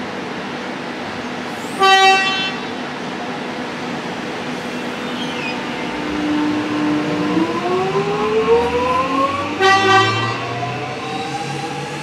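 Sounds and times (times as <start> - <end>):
train horn toot: 1.8 - 2.7, 9.6 - 10.7
electric train motors whining: 4.6 - 12.0.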